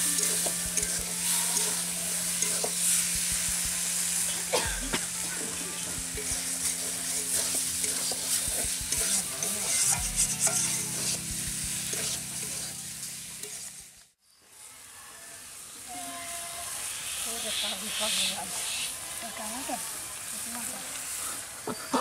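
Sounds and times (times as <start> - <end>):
spatula scraping a wok: 0.0 - 13.9
potatoes sizzling in oil: 0.0 - 22.0.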